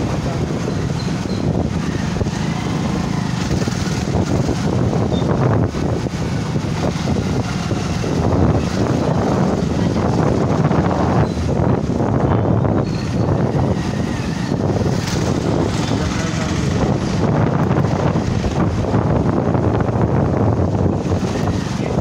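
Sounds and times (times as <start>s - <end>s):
tyre and road noise: 0.0s - 22.0s
wind buffeting microphone: 0.0s - 22.0s
scooter engine running: 1.1s - 11.0s, 13.4s - 19.8s.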